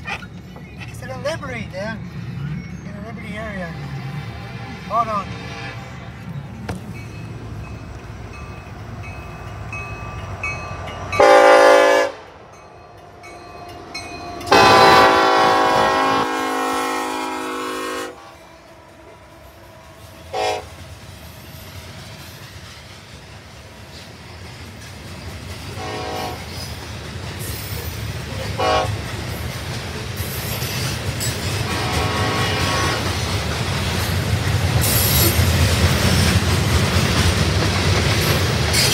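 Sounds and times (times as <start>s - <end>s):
freight train rumble: 0.0s - 38.9s
train air horn: 3.7s - 6.0s, 11.2s - 12.3s, 14.4s - 20.8s, 25.8s - 26.5s, 28.5s - 29.0s, 31.6s - 33.1s.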